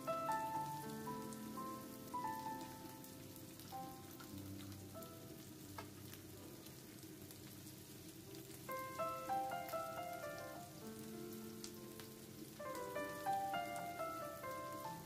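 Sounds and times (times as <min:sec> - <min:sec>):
quiet background music: 0:00.0 - 0:15.0
vegetables sizzling in frying pan: 0:00.0 - 0:15.0.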